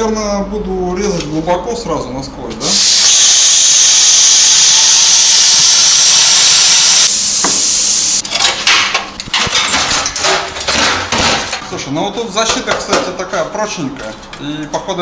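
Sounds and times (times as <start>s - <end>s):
plasma cutter hissing: 2.6s - 8.2s.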